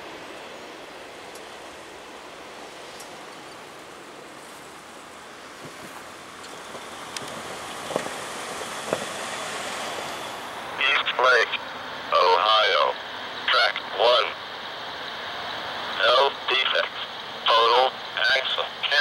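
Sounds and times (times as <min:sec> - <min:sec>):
truck tyre noise: 0:00.0 - 0:16.0
wheels thumping over rails: 0:06.7 - 0:09.3.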